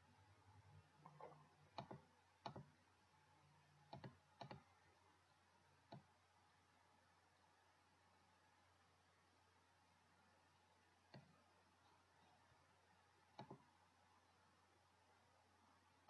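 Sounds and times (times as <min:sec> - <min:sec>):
mouse button clicking: 0:01.1 - 0:02.7, 0:03.9 - 0:04.7.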